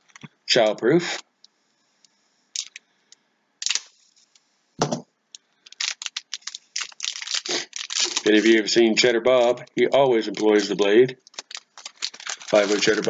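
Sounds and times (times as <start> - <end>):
foil crinkling: 3.6 - 4.3, 5.6 - 13.0
knife slitting foil pack: 5.7 - 8.7, 10.3 - 13.0.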